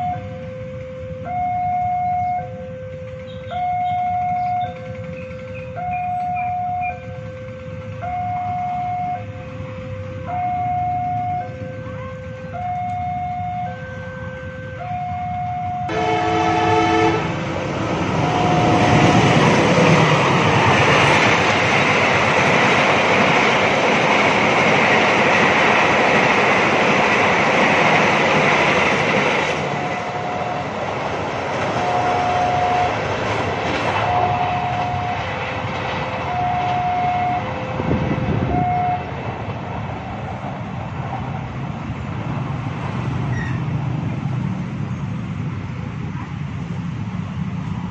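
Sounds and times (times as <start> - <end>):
level crossing two-tone alarm: 0.0 - 16.2, 18.1 - 21.3, 29.6 - 33.2, 34.0 - 35.5, 36.2 - 39.1
train horn: 0.0 - 21.3, 29.4 - 30.9, 31.6 - 35.5, 36.2 - 39.3
train wheels on rails: 0.0 - 47.9.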